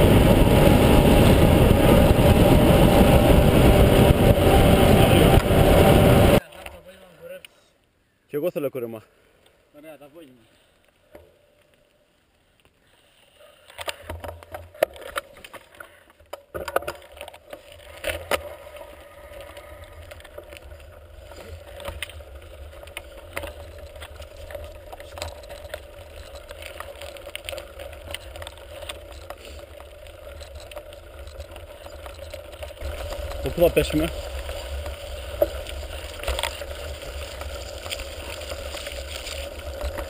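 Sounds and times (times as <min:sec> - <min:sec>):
low rumble: 0:00.0 - 0:06.4
bike rattling: 0:00.0 - 0:06.5, 0:13.7 - 0:40.0
bike tyres on gravel: 0:09.8 - 0:40.0.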